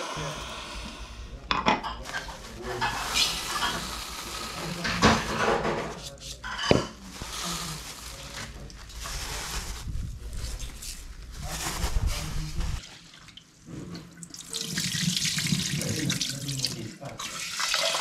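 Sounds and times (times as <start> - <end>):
rice pouring into a pot: 2.0 - 5.3.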